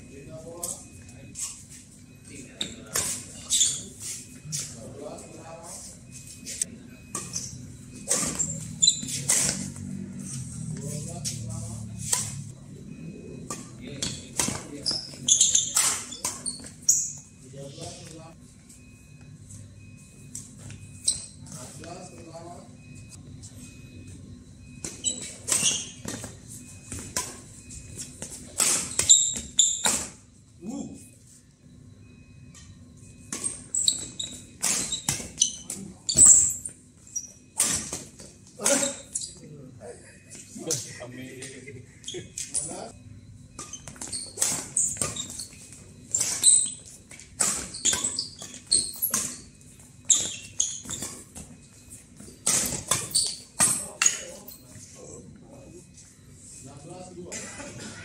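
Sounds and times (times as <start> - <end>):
shoe squeaks on court: 0.5 - 12.4, 13.5 - 18.2, 20.1 - 22.4, 24.8 - 30.2, 33.3 - 39.5, 43.6 - 54.8
rackets hitting shuttlecock: 28.2 - 30.2.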